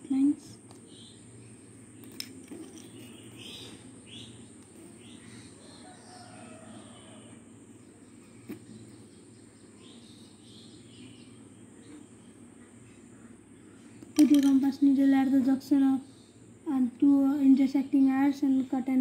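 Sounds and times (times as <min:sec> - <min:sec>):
steady low hum: 0:00.0 - 0:19.0
faint bird chirps: 0:00.1 - 0:16.6.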